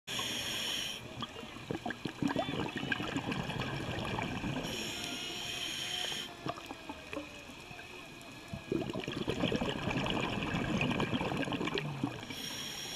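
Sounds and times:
regulator inhale hiss: 0.1s - 1.2s, 4.6s - 6.5s, 12.2s - 12.9s
gurgling exhaled bubbles: 1.0s - 4.9s, 8.5s - 12.4s.

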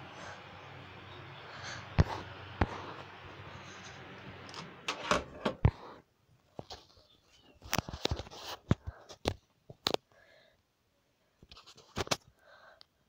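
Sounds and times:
fan whirring: 0.0s - 6.0s.

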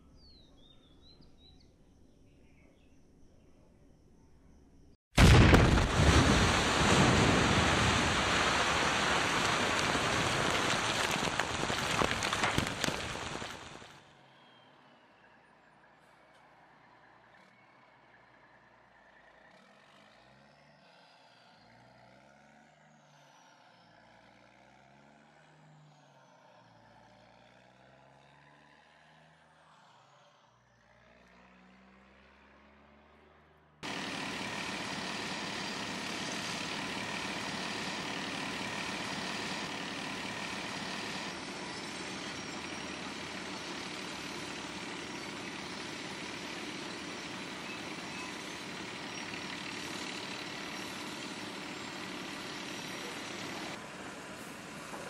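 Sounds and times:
distant machinery engine: 5.2s - 15.0s, 33.8s - 55.0s
dump truck engines: 5.2s - 27.3s, 33.8s - 55.0s.

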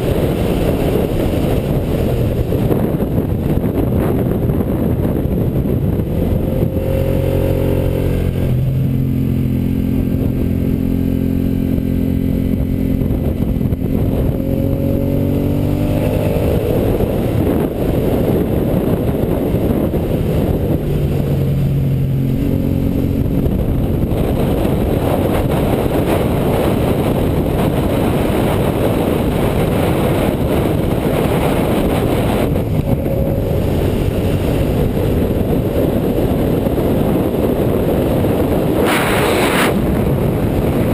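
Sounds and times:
motorcycle engine accelerating hard: 0.0s - 40.9s
wind rush on microphone: 0.0s - 40.9s.

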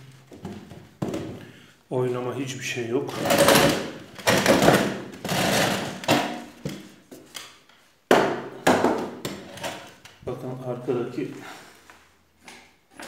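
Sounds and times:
chair legs knocking on concrete: 0.4s - 1.4s, 8.1s - 9.5s.

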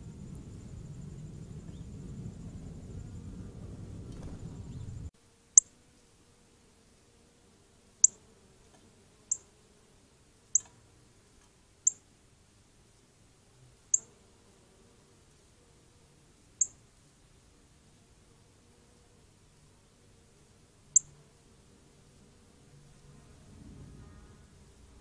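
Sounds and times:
cardinal chip calls: 9.3s - 9.5s, 16.6s - 16.8s.

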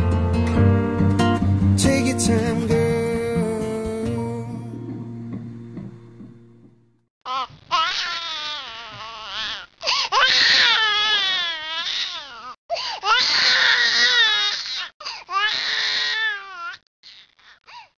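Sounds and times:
newborn baby crying: 7.2s - 17.7s.

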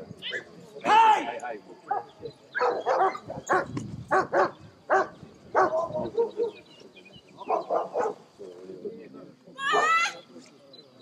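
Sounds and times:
dog barking: 1.9s - 6.6s, 7.5s - 8.2s.

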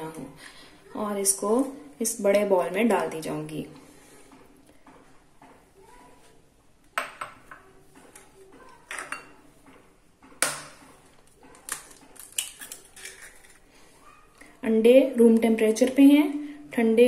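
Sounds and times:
glass bowls clinking on marble: 8.9s - 9.4s.

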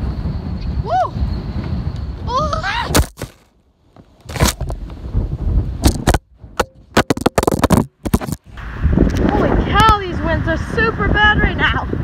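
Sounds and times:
person whooping: 0.8s - 1.2s, 2.3s - 3.0s
phone handling noise on microphone: 4.2s - 4.8s, 5.8s - 8.4s.

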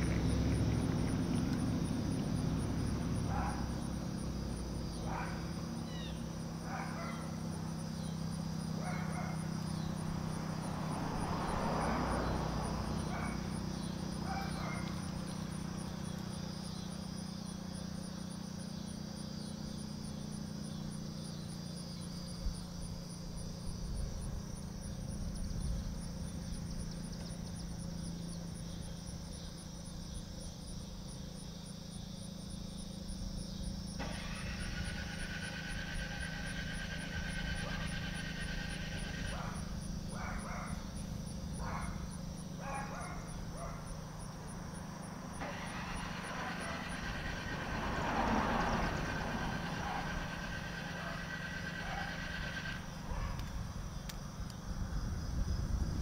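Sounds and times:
insects chirping: 0.0s - 56.0s
passing engine: 0.0s - 56.0s
warning siren winding down: 34.0s - 40.3s, 45.4s - 53.1s.

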